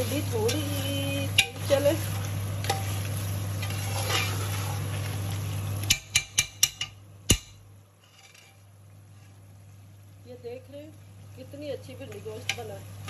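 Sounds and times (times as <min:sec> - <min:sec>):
spoon tapping metal pot: 0:01.3 - 0:01.6, 0:05.8 - 0:07.6
metal spoon scraping pot: 0:03.6 - 0:04.8, 0:08.0 - 0:08.6.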